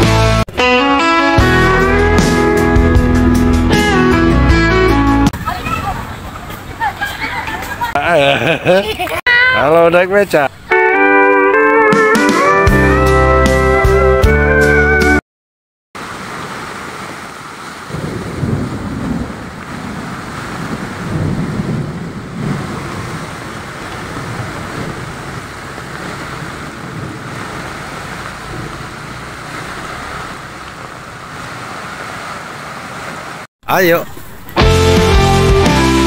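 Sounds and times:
heavy rain hissing: 16.0 - 35.8.

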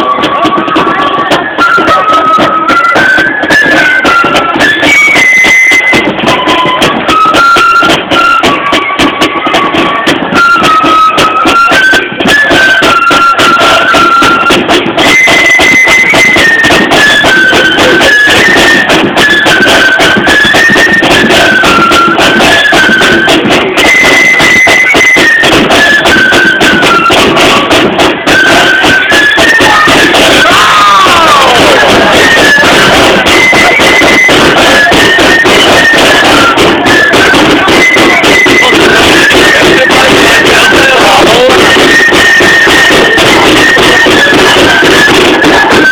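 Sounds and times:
flutes playing melody: 0.0 - 45.9
snare drums: 0.0 - 45.9
bass drum: 25.2 - 45.9.

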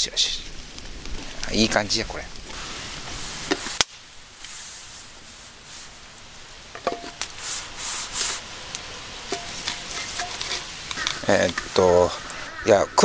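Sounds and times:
fire hissing: 0.0 - 13.0.

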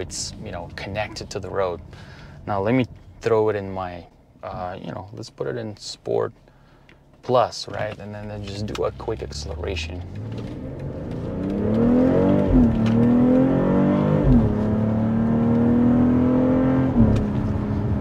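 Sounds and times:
car engine accelerating hard: 8.3 - 18.0
gear upshifts dropping pitch: 8.3 - 18.0.

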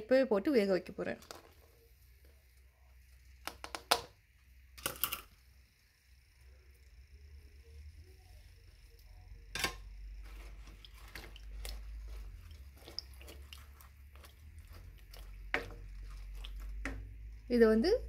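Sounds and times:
spoon stirring food in water: 8.9 - 17.5.

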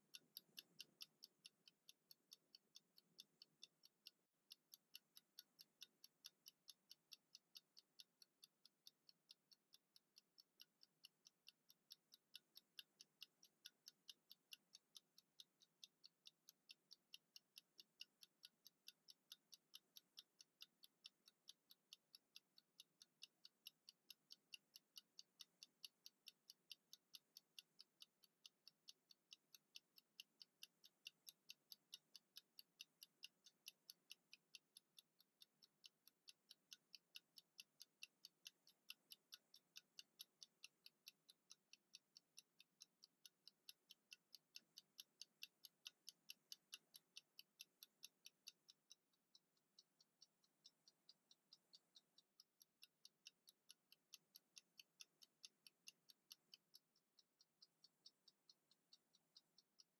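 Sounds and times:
kitchen timer ticking: 0.0 - 59.9.

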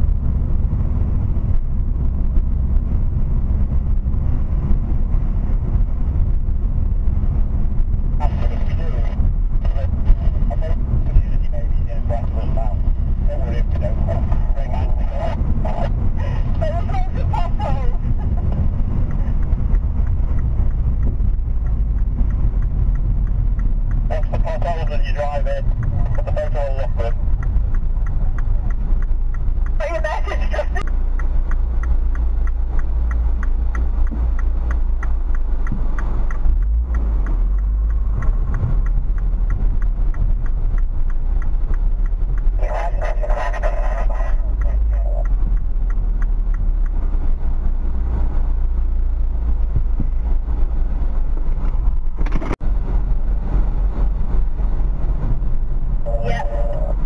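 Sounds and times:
car engine and road rumble: 0.0 - 57.0
walkie-talkie chatter: 8.2 - 18.7, 24.1 - 27.2, 29.8 - 30.9, 42.6 - 45.4, 56.1 - 57.0.

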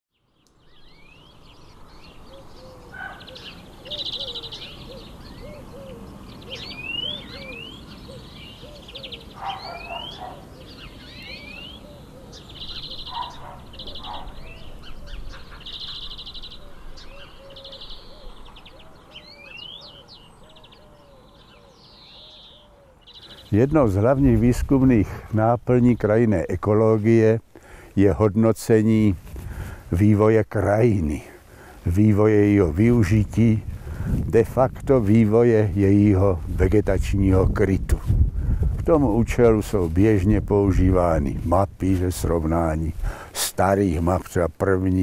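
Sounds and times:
low repeated bird call: 0.1 - 26.5
songbirds chirping and trilling: 0.1 - 45.0.

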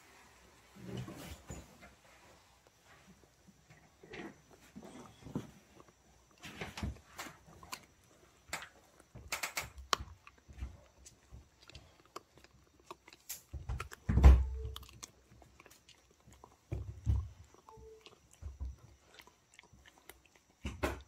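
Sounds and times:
dog chewing jerky: 7.0 - 20.7.

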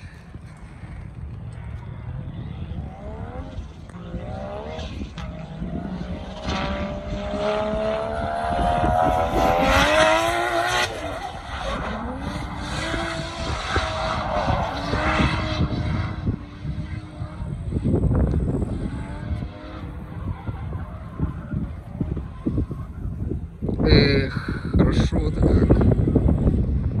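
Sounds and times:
car engine revving hard: 2.9 - 17.8.

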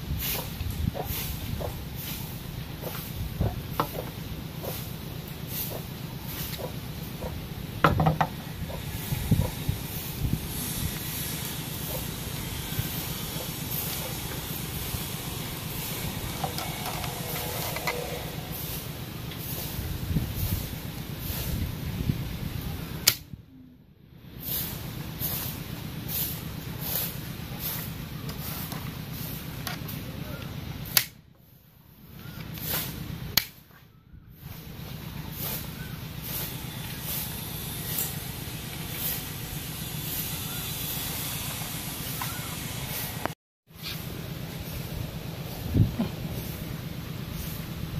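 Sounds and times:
hiss: 0.0 - 23.1, 24.3 - 30.1, 32.5 - 33.1, 34.4 - 47.9
low rumble: 12.2 - 22.7
bamboo toy gun snapping: 23.0 - 23.2
bamboo clicking: 23.0 - 23.3, 30.9 - 31.2, 33.4 - 33.6.

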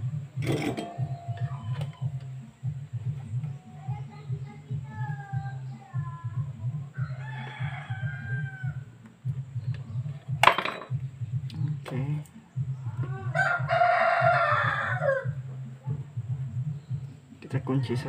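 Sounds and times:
low pulsing hum: 0.0 - 17.5
rooster crowing: 7.0 - 9.0, 13.0 - 15.4.

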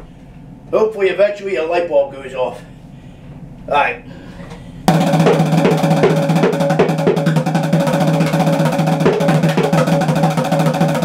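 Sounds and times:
bongo drum roll with drumsticks: 4.9 - 11.0.

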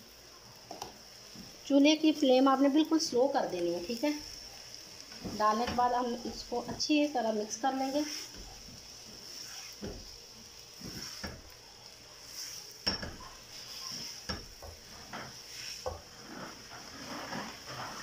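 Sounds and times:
faint steady hiss: 0.0 - 18.0
spatula scraping a frying pan: 3.9 - 18.0.

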